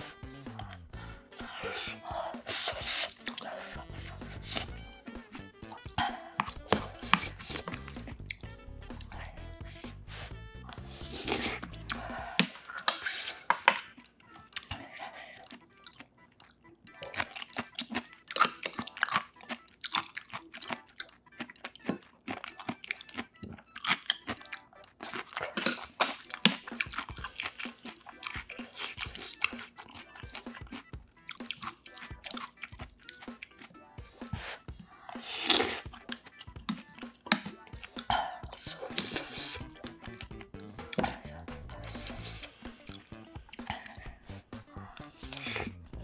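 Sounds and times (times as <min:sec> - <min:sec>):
wet chewing and smacking: 0:00.0 - 0:46.0.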